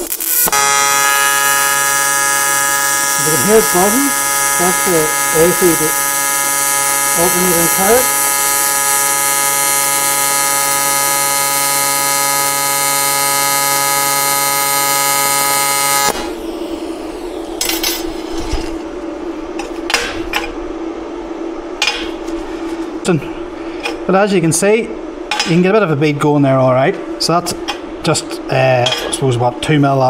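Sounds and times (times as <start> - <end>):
welding arc buzzing: 0.0 - 20.6.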